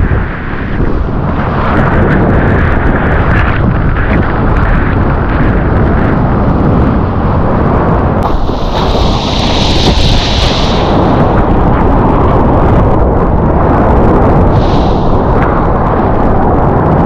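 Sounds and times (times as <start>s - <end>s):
wind buffeting microphone: 0.0s - 17.0s
hiss of spray: 8.2s - 11.5s, 14.5s - 15.4s
whitewater rushing: 8.2s - 11.6s.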